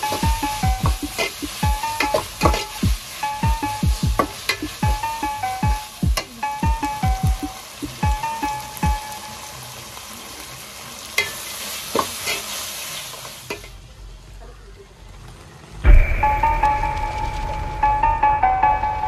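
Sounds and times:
background music with a beat: 0:00.0 - 0:09.1, 0:15.9 - 0:19.0
food sizzling in a metal pot: 0:00.0 - 0:19.0
spatula scraping and knocking pot: 0:02.0 - 0:02.9.

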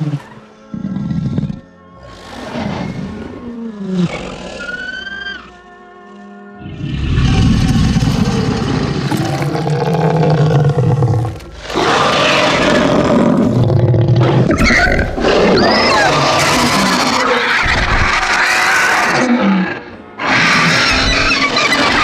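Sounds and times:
dragon roaring: 0:06.6 - 0:22.0.

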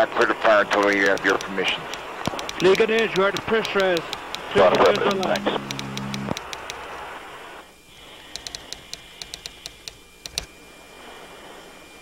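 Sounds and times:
typing key clicks: 0:00.8 - 0:06.9, 0:08.4 - 0:10.5.

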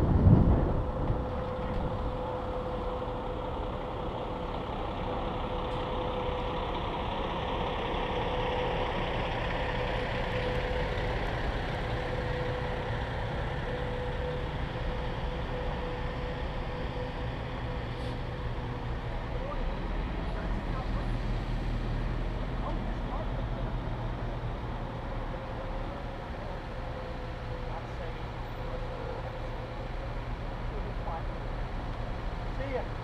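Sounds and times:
wind noise rushing: 0:00.0 - 0:01.3
constant whine: 0:00.0 - 0:33.0
truck engine running: 0:00.0 - 0:33.0.

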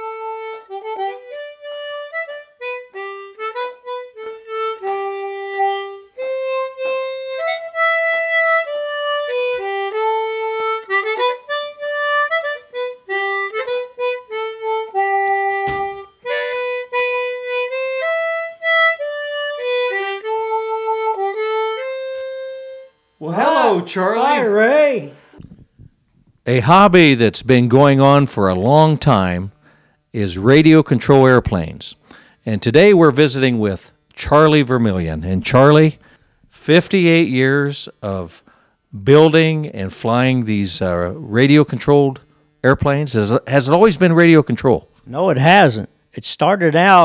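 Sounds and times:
harmonica playing: 0:00.0 - 0:25.6, 0:32.0 - 0:45.8.

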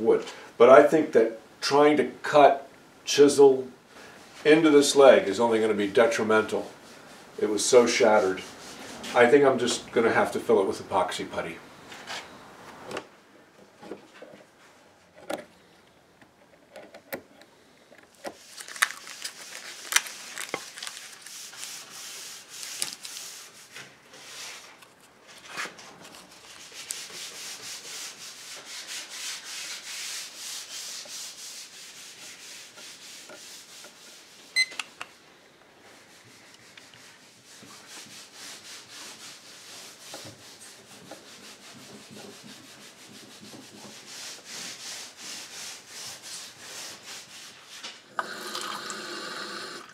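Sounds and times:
rubbing and scraping on wood: 0:04.2 - 0:10.3, 0:16.3 - 0:35.2, 0:35.8 - 0:48.0.

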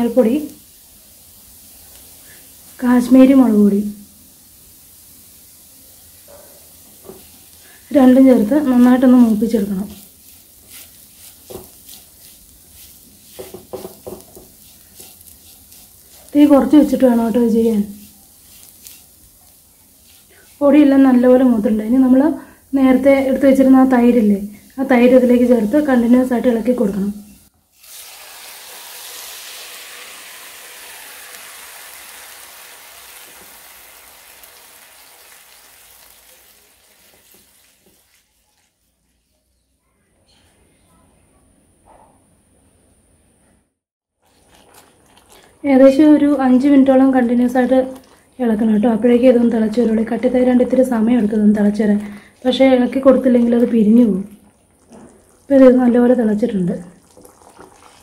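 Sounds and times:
faint sizzling in a pan: 0:00.0 - 0:40.8, 0:44.2 - 0:58.0
soft stirring scrapes: 0:09.0 - 0:22.7, 0:37.0 - 0:41.1, 0:44.2 - 0:46.5.

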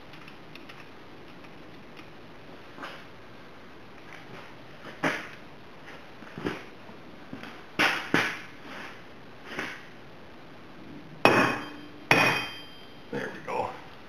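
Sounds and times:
ringing metal clinks: 0:11.3 - 0:13.1.

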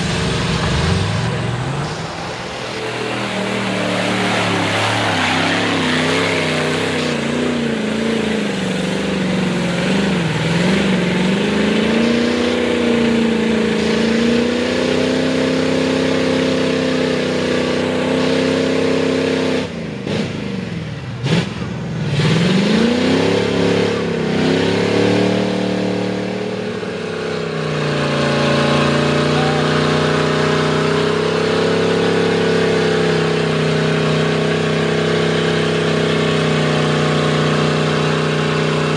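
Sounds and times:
truck engine revving hard: 0:00.0 - 0:38.9.

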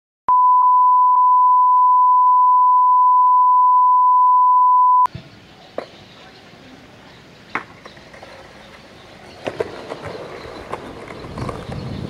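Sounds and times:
steady test-tone beep: 0:00.3 - 0:05.1
faint outdoor background noise: 0:05.0 - 0:12.0.

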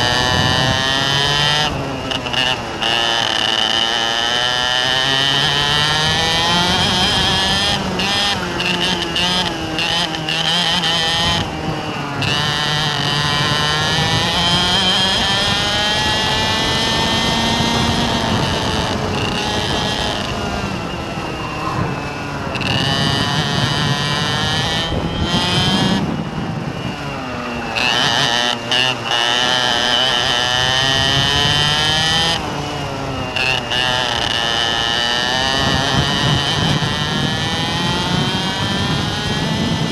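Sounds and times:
vehicle engine revving: 0:00.0 - 0:39.9.

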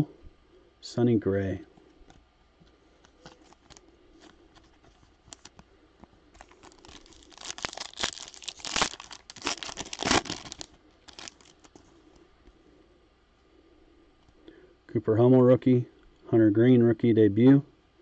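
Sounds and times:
card and wrapper handling clicks: 0:04.6 - 0:05.7
foil wrapper tearing and crinkling: 0:05.3 - 0:05.5, 0:06.4 - 0:11.8.

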